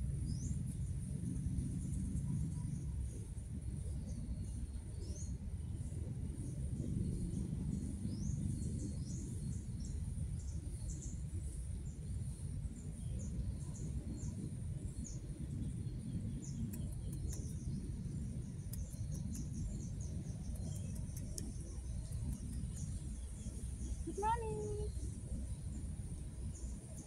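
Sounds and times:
low rumble: 0.0 - 27.0
bird chirping: 13.0 - 25.1.

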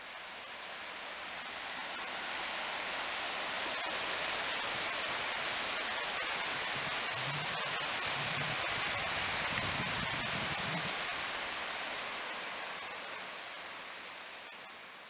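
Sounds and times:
sea surf hissing: 3.9 - 12.6.

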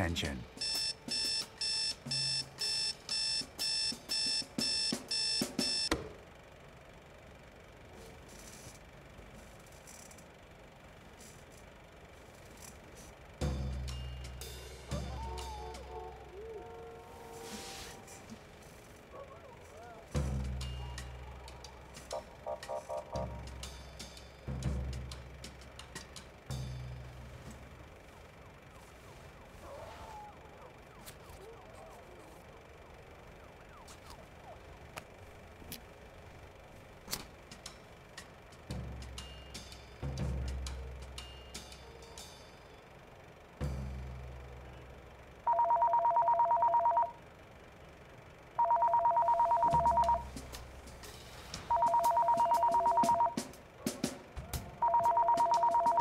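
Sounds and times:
telephone ringing electronic trill: 0.6 - 5.9, 45.5 - 47.2, 48.6 - 50.3, 51.7 - 53.5, 54.8 - 56.0
steady hiss: 6.7 - 30.6, 50.2 - 51.7
faint siren wailing: 14.9 - 23.6, 28.3 - 35.4.

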